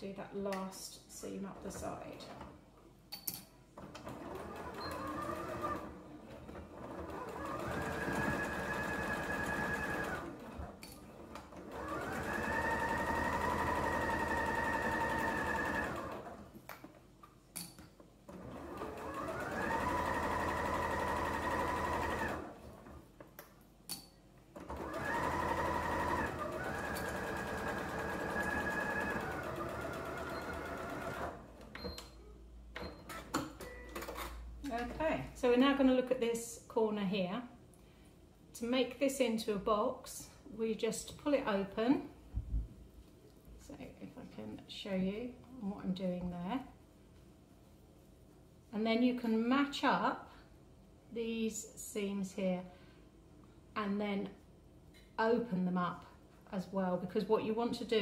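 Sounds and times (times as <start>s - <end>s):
sewing machine motor whine: 6.9s - 10.5s, 11.7s - 16.3s, 18.5s - 22.5s, 24.7s - 31.4s.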